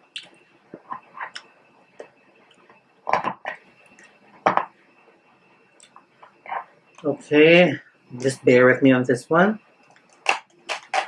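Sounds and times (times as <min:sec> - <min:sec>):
crab shell cracking: 0:09.9 - 0:11.0.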